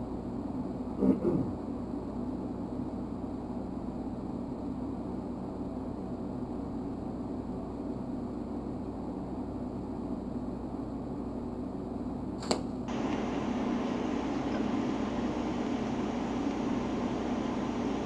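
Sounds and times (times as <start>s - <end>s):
steady low hum: 12.1s - 18.0s
welding torch arc hissing: 12.9s - 18.0s.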